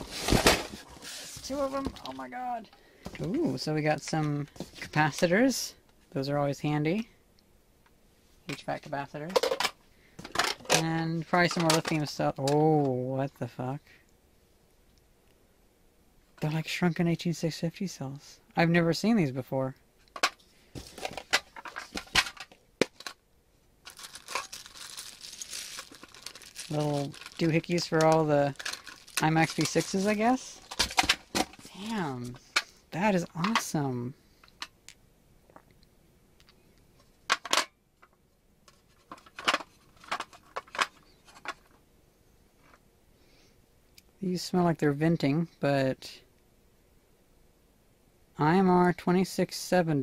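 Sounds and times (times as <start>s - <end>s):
plastic bag crinkling: 23.8s - 31.9s.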